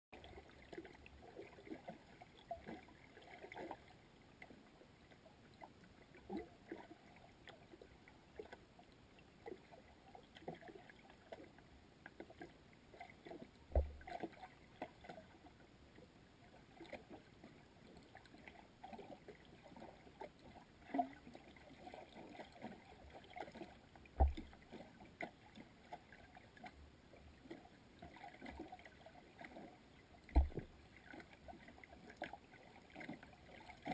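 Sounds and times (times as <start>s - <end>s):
small underwater clicks: 0.2s - 33.9s.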